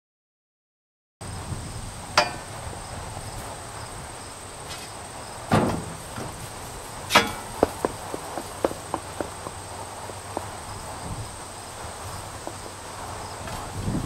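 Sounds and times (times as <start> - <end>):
hand truck clanks: 2.2 - 2.5, 5.5 - 10.7.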